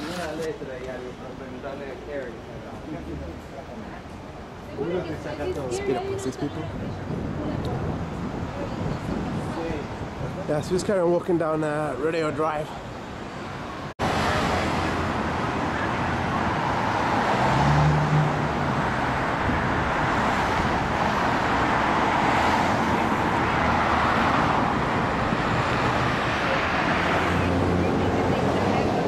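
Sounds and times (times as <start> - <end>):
cars driving past: 12.2 - 29.0.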